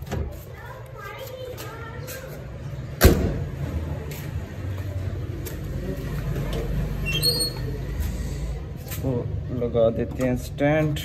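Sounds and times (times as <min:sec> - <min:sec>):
short high squeaks: 0:07.0 - 0:07.8.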